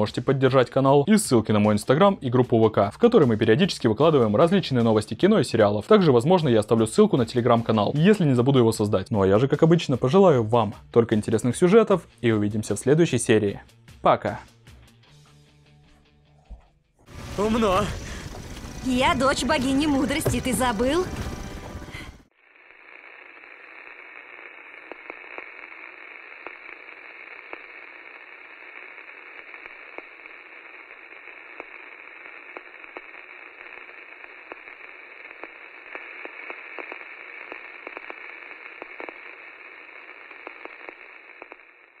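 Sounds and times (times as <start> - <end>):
static hiss with crackles: 17.1 - 42.0.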